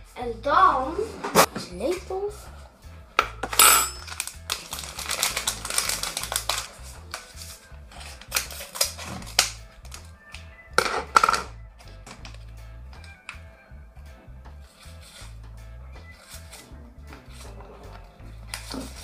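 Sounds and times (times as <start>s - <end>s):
background music: 0.0s - 19.0s
paper packet crinkling: 4.0s - 10.1s.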